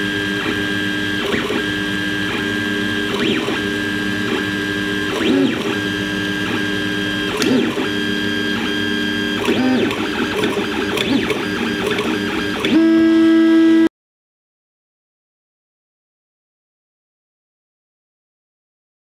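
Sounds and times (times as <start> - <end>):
stepper motors whining: 0.0 - 13.9.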